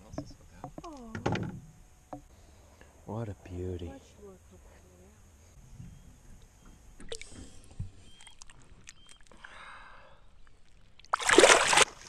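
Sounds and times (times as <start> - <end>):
soft slosh of water: 10.5 - 12.0
loud splashing: 11.1 - 12.0.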